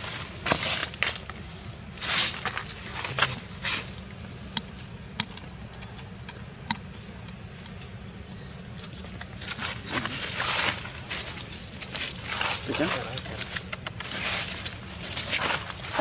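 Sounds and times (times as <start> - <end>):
dry leaves rustling: 0.0 - 5.0, 8.9 - 16.0
monkey sucking clicks: 4.6 - 7.8.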